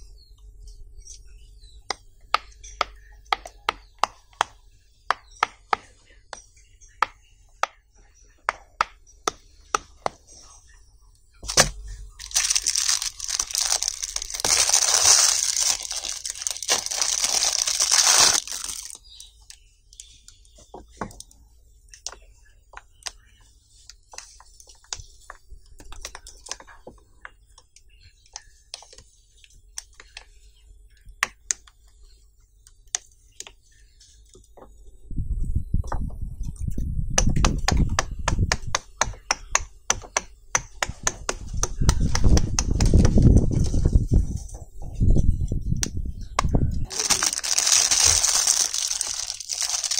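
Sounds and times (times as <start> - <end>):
plastic wrapper crinkling: 11.4 - 19.6, 46.9 - 49.9.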